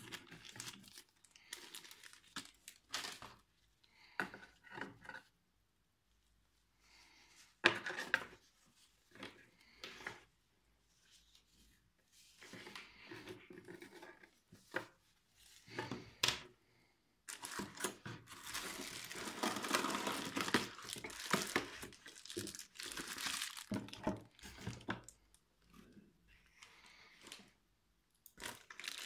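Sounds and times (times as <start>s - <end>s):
bubble wrap crinkling: 0.0s - 3.7s, 17.3s - 25.3s, 28.2s - 29.0s.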